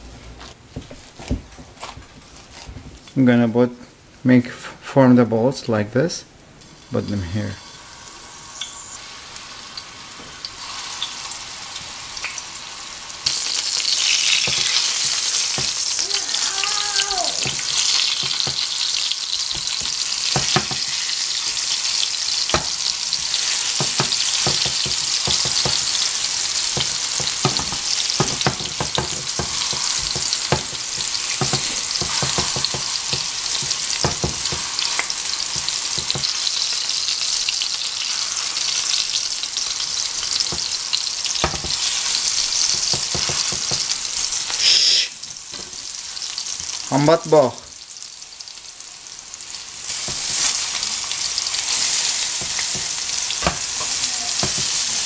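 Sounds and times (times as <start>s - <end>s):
food sizzling in oil: 6.6s - 55.0s
spatula scraping pan: 22.4s - 36.7s, 40.0s - 44.3s, 49.9s - 55.0s.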